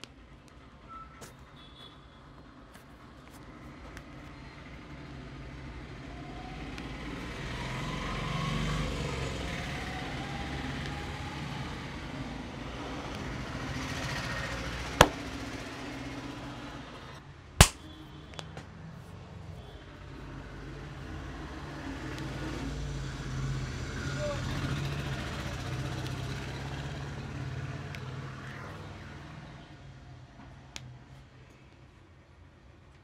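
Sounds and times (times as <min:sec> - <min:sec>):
skin cracking snaps: 0:17.6 - 0:17.8.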